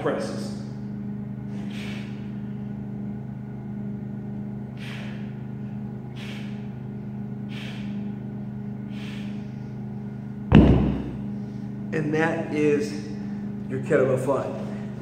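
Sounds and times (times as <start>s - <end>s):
steady low hum: 0.0s - 15.0s
man exhaling forcefully: 1.5s - 2.4s, 4.7s - 5.4s, 6.1s - 6.8s, 7.5s - 8.2s, 8.9s - 9.6s.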